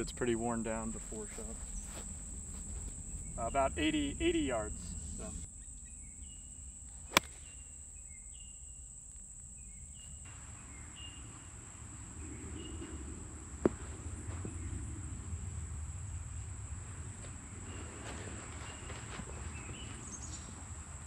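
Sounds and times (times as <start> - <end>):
high-pitched insect drone: 0.0 - 13.2
bird chirps: 1.0 - 3.6
golf ball landing: 7.1 - 7.6.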